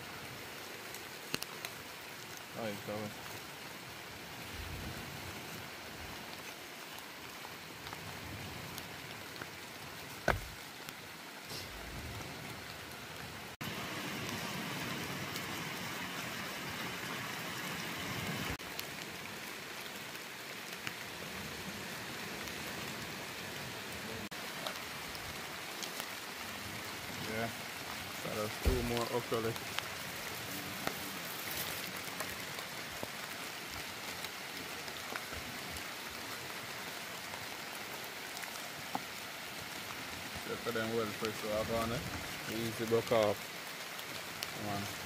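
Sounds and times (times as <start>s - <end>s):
steady rain falling: 0.0s - 45.0s.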